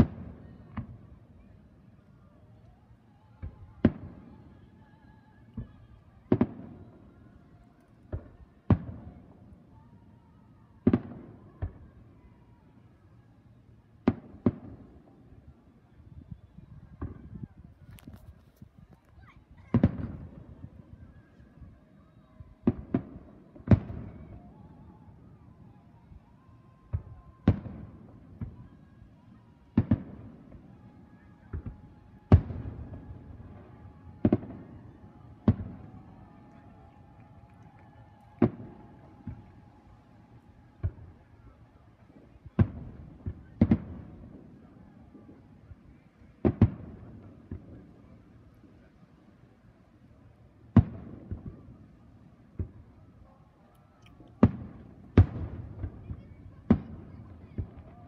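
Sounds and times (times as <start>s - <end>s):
fireworks booming: 19.6s - 20.6s, 26.9s - 28.6s, 29.8s - 36.4s.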